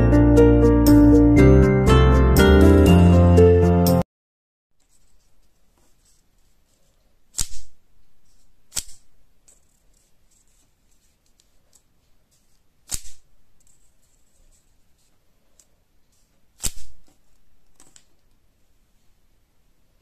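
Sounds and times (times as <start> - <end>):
faint paper rustling: 4.8 - 19.2
paper clapper cracks: 7.3 - 10.0, 12.8 - 13.9, 16.6 - 18.3.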